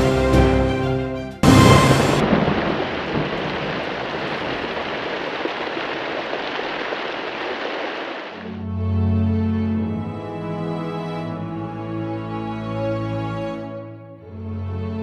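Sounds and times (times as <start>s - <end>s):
rain hiss: 1.4s - 8.6s
thunder rumble: 1.4s - 8.6s.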